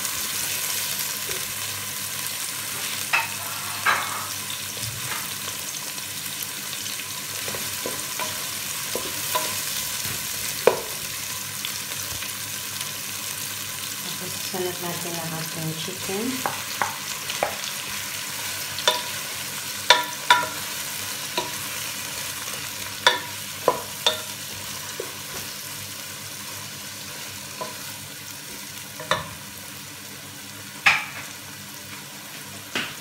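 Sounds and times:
chicken sizzling in a pan: 0.0 - 33.0
wooden spatula knocking on pan: 10.6 - 11.0, 16.4 - 17.7, 30.8 - 31.3.

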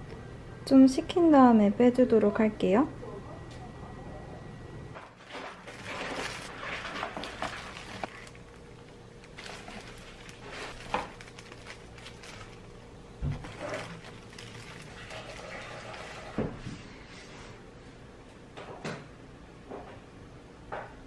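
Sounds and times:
plastic gloves rustling: 5.0 - 16.6.

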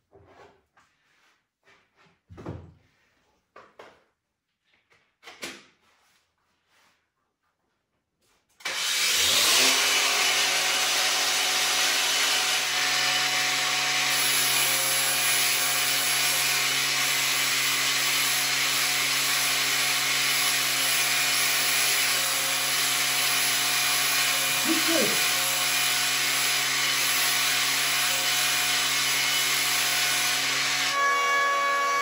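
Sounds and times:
angle grinder grinding: 8.7 - 32.0.

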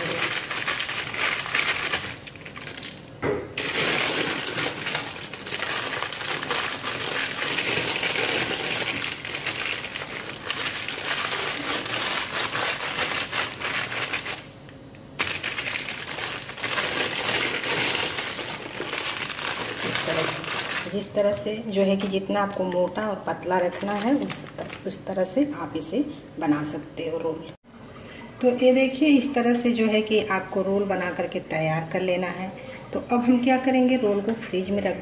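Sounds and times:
plastic sheet crinkling: 0.0 - 14.6, 15.2 - 21.2, 23.5 - 25.0.

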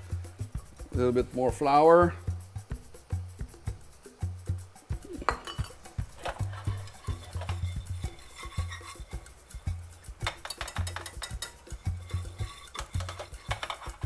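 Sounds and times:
whisk clicking and scraping on metal: 5.2 - 14.0.

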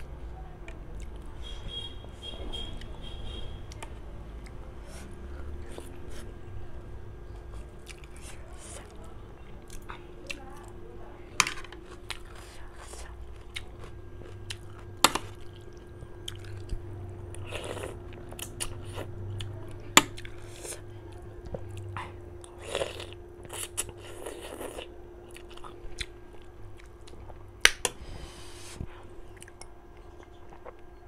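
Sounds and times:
wet chewing: 11.8 - 27.8.

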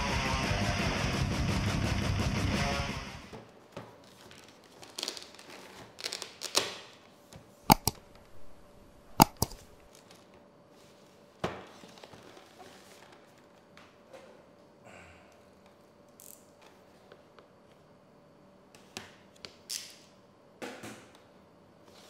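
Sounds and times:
sharp clicks: 7.7 - 8.0, 9.1 - 9.8.

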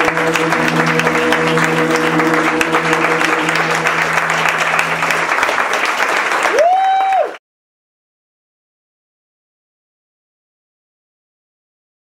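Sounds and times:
band holding low chord: 0.0 - 6.4
audience applauding: 0.0 - 7.4
high held cheer: 0.0 - 7.4.

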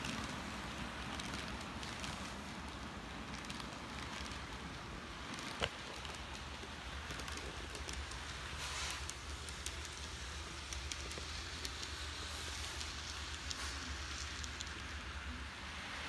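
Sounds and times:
model train rushing hiss: 6.9 - 16.0.

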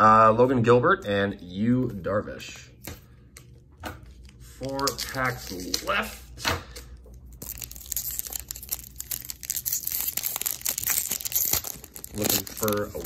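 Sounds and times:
cards being handled: 2.8 - 6.1, 6.7 - 13.0
plastic wrapper tearing and crinkling: 7.2 - 13.0.

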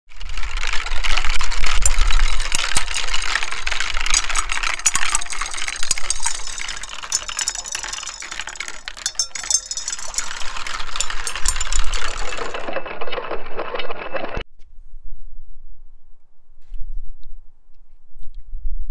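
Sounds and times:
glass marble clicking on plastic: 0.2 - 12.7
water pouring into a bowl: 0.2 - 13.1
wind rumble on microphone: 14.6 - 18.9.

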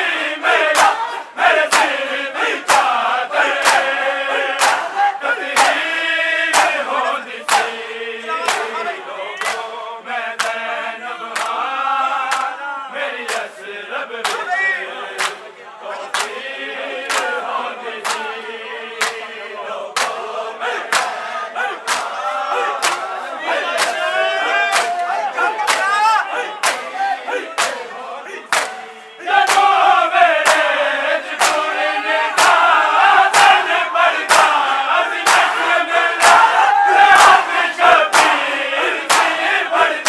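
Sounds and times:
men chanting in unison: 0.0 - 40.0
hands slapping bare chests: 0.7 - 1.1, 1.7 - 2.0, 2.6 - 3.0, 3.6 - 4.0, 4.6 - 4.9, 5.5 - 5.8, 6.5 - 6.8, 7.5 - 7.8, 8.4 - 8.7, 9.4 - 9.7, 10.4 - 10.6, 11.3 - 11.7, 12.3 - 12.5, 13.2 - 13.5, 15.2 - 15.4, 16.1 - 16.3, 20.0 - 20.2, 20.8 - 22.2, 22.8 - 23.1, 24.7 - 26.0, 26.6 - 26.9, 27.6 - 27.9, 28.5 - 28.8, 29.4 - 29.8, 30.4 - 30.7, 31.3 - 31.7, 32.4 - 32.7, 34.3 - 34.6, 35.2 - 35.6, 38.1 - 38.4, 39.0 - 39.4.

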